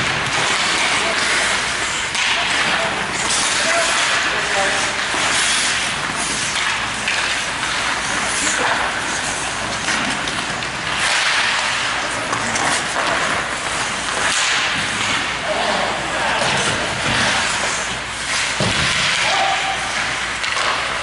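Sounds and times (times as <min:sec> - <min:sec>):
hockey stick and puck noises: 0:00.0 - 0:21.0
skate blades scraping ice: 0:00.0 - 0:21.0.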